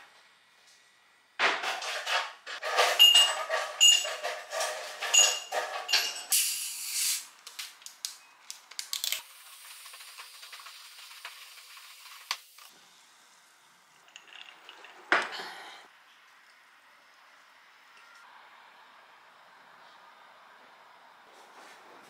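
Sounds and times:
cola fizzing as it is poured: 9.2s - 12.7s.

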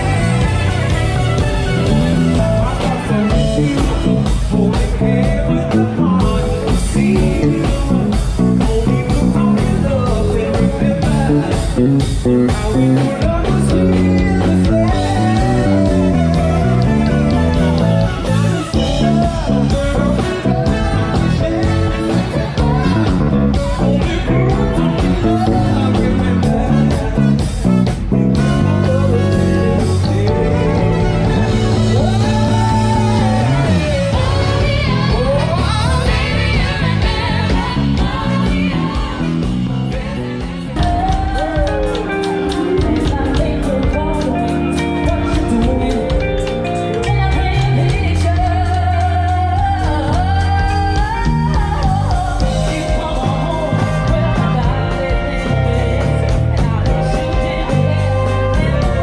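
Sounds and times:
live band with lead vocal: 0.0s - 59.0s
woman singing with backing singers: 32.4s - 44.4s.

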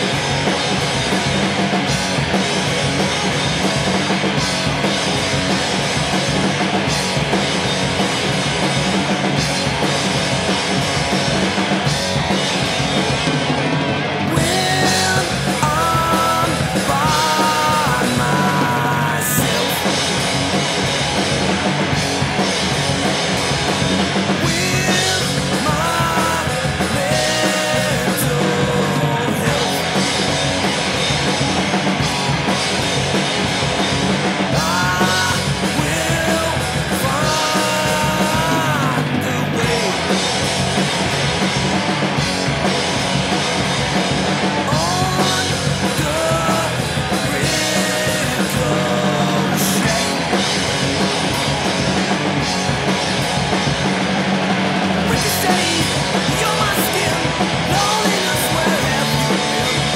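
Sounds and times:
bass guitar: 0.0s - 59.9s
drums: 0.0s - 59.9s
electric guitars: 0.0s - 59.9s
man singing: 14.3s - 20.1s, 24.4s - 30.1s, 34.5s - 40.2s, 44.6s - 50.4s, 55.0s - 59.9s.

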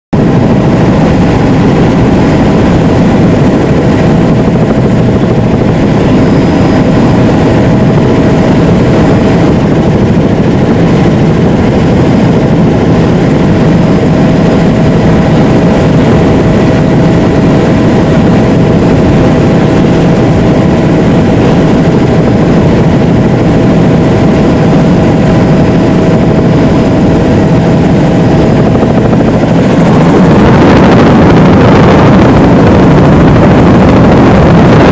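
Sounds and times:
constant whine: 0.1s - 34.9s
helicopter rotor and engine drone: 0.1s - 34.9s.

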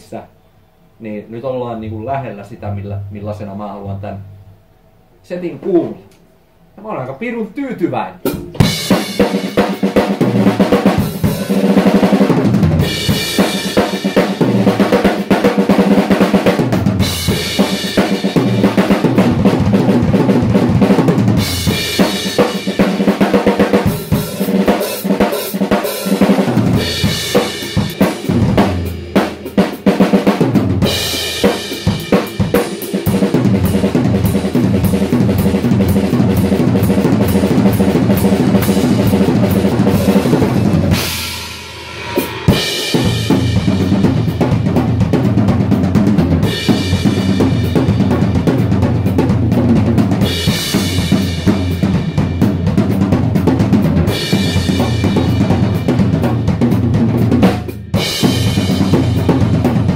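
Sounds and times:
drum kit groove: 8.2s - 59.9s
cymbal crashes: 39.9s - 44.0s.

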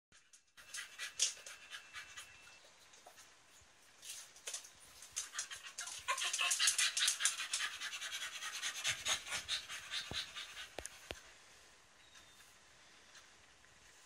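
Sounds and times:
rapid rhythmic panting: 0.6s - 2.5s, 5.2s - 11.4s.

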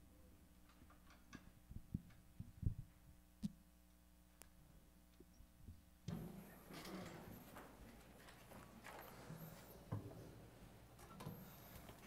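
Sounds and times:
rustling and shuffling: 6.2s - 12.0s.

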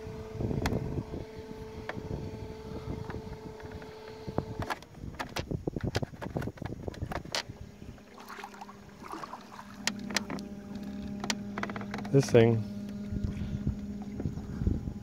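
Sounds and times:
electric motor humming: 0.0s - 15.0s
sharp clicks and knocks: 4.6s - 7.5s, 9.8s - 13.0s.

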